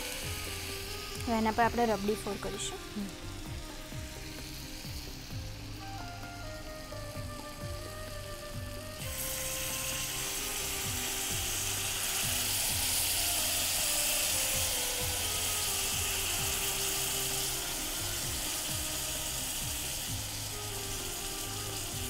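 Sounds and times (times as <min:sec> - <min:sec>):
background music with beat: 0:00.0 - 0:22.0
hot plate sizzling: 0:00.0 - 0:22.0.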